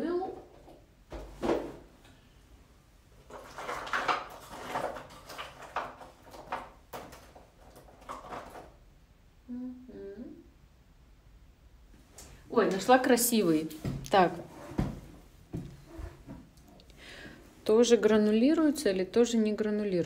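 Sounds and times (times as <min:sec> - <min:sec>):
paint tubes clattering and scraping: 0:03.2 - 0:08.8
person humming: 0:09.4 - 0:10.5.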